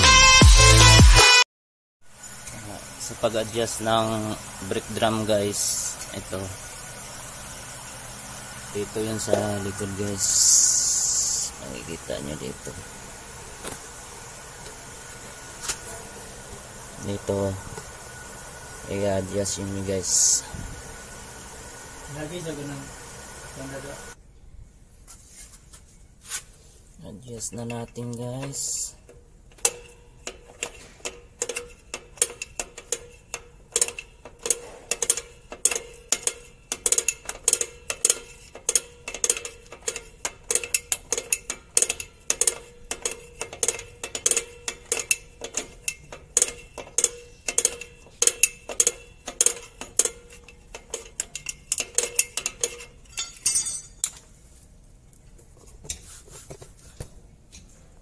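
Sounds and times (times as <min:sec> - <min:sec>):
sharp metallic clicks: 0:27.6 - 0:53.0.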